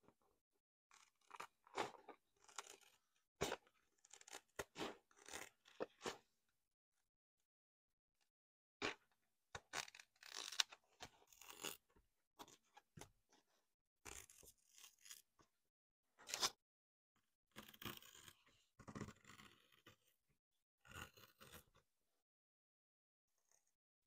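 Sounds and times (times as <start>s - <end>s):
scissors cutting canvas: 0.9s - 6.3s, 9.6s - 11.8s, 14.1s - 15.3s, 20.8s - 21.8s.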